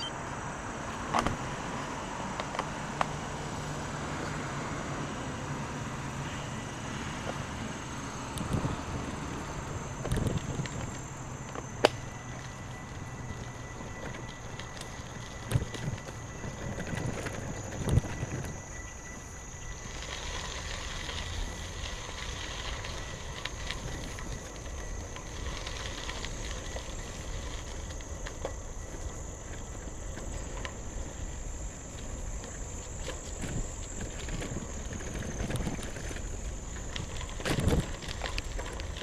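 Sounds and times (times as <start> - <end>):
bicycle tyres rolling on gravel: 0.4 - 39.0
stones crunching and ticking: 9.9 - 39.0.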